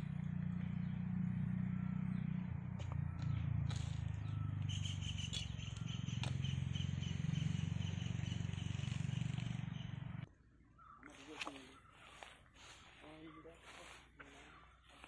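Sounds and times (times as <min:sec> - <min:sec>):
faint bird call: 0:10.7 - 0:15.0.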